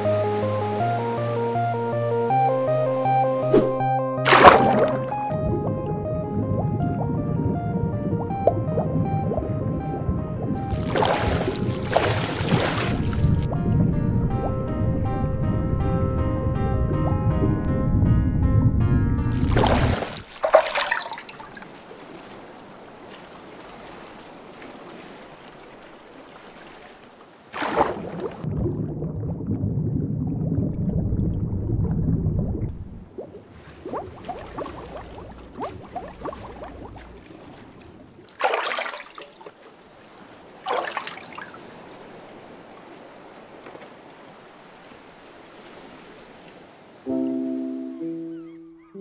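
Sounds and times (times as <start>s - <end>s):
water splashes: 2.9s - 7.2s, 10.3s - 13.5s, 19.2s - 31.5s, 32.6s - 47.0s
trickling water: 10.4s - 13.5s, 19.2s - 46.6s
low rumble: 13.1s - 19.3s, 28.5s - 33.2s.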